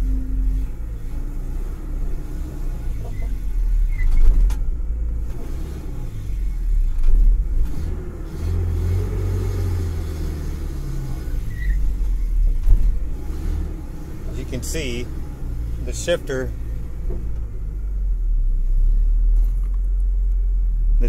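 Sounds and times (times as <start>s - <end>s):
pickup engine rumbling: 0.0s - 21.0s.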